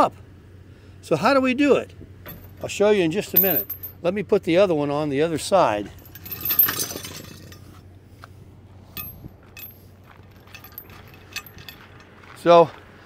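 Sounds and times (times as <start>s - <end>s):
metal chain clinking: 2.2s - 4.0s, 5.9s - 7.8s, 9.0s - 12.2s.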